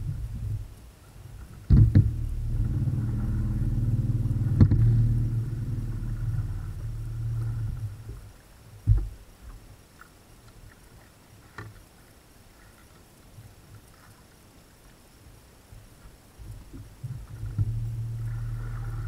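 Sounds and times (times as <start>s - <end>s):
knocks on boat deck: 1.7s - 2.2s, 4.4s - 5.0s
electric motor humming: 1.8s - 7.9s.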